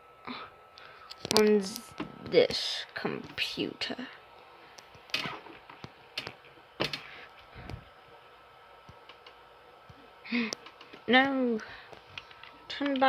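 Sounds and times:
sharp clicks: 6.2s - 7.0s.

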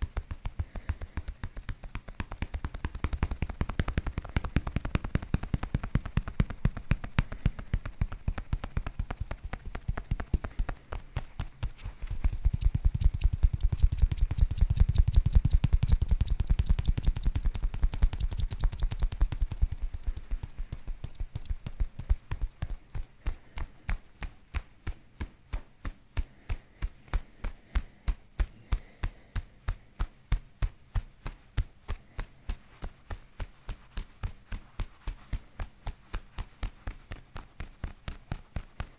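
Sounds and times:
hands tapping on skin: 0.0s - 38.9s.

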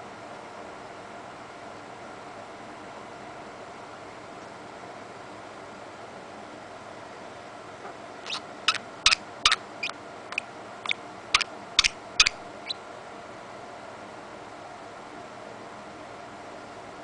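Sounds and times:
budgerigar chirping: 8.2s - 12.8s.

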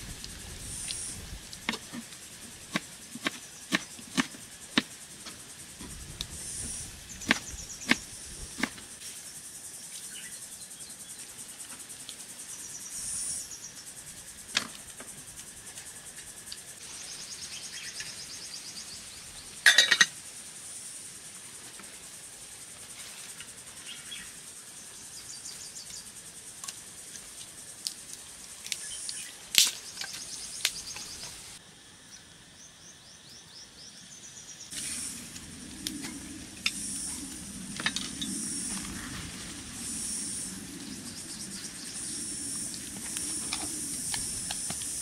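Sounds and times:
high insect drone: 0.0s - 45.0s
insects trilling: 0.0s - 45.0s.

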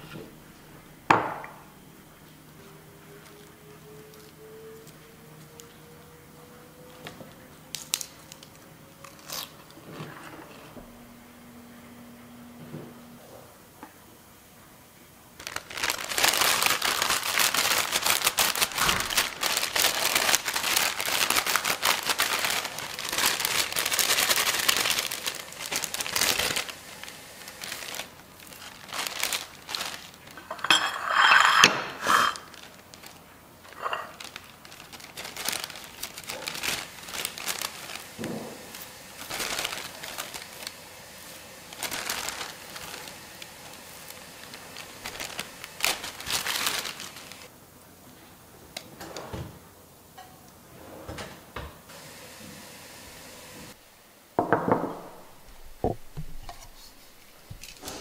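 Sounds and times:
plastic packaging crinkling: 7.7s - 9.8s, 15.4s - 47.5s, 55.2s - 58.0s.

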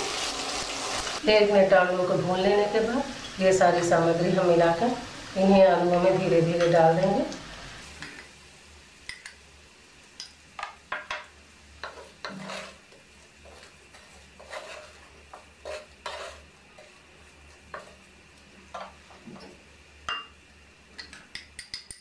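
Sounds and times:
faint sizzling: 0.0s - 22.0s
wooden spatula scraping a pan: 11.8s - 18.1s.

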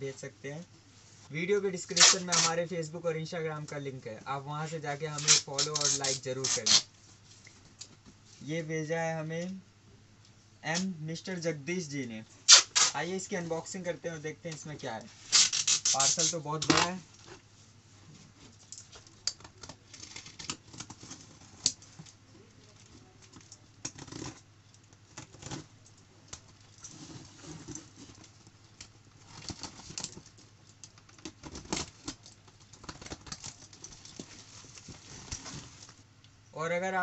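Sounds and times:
packing tape scraping and ripping: 1.8s - 2.6s, 5.1s - 6.9s, 12.5s - 13.2s, 15.2s - 17.4s, 19.0s - 21.9s, 23.4s - 24.5s, 25.1s - 25.7s, 29.2s - 36.0s.

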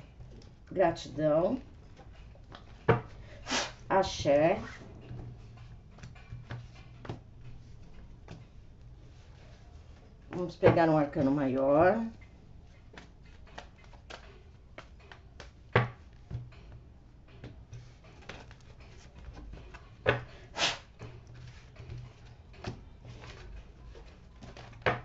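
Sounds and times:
cards tapping on table: 2.5s - 3.1s, 14.8s - 16.5s, 19.3s - 20.3s, 22.6s - 25.0s
cards being shuffled: 12.2s - 16.4s, 17.4s - 25.0s.

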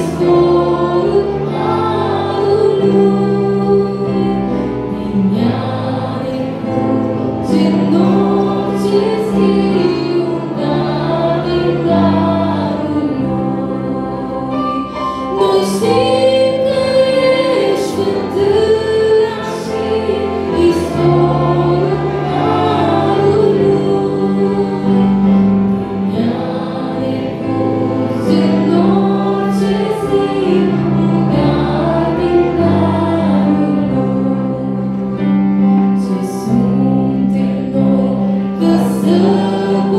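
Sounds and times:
held low accompaniment notes: 0.0s - 39.9s
woman singing a hymn: 0.0s - 39.9s.

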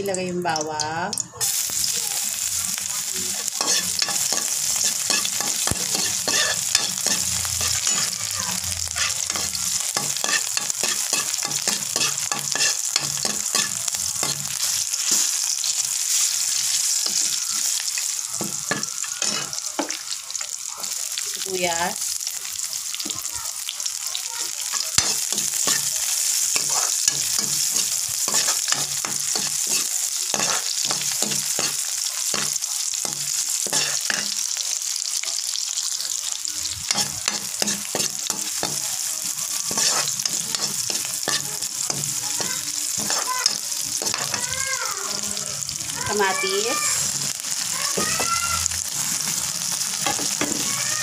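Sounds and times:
onion sizzling in hot oil: 0.0s - 51.0s
spoon scraping metal pan: 3.3s - 15.4s, 18.4s - 19.9s, 24.7s - 32.6s, 33.6s - 34.4s, 36.9s - 38.8s, 39.6s - 44.4s.

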